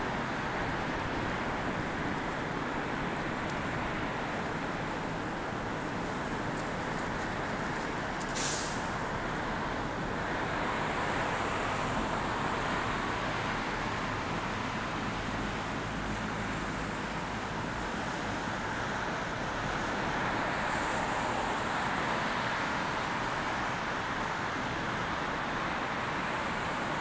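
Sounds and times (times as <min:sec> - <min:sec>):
busy road traffic: 0:00.0 - 0:27.0
brief sharp hiss: 0:08.2 - 0:09.0.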